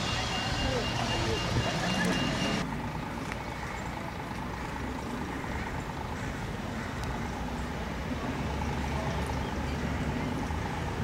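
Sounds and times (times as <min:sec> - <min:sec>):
tram rumbling on rails: 0:00.0 - 0:02.9.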